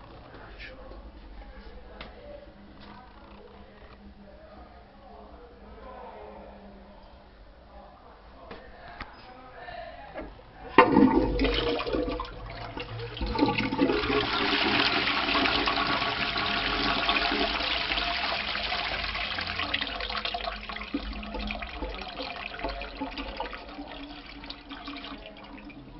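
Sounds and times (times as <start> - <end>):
toilet flushing: 10.7 - 25.9.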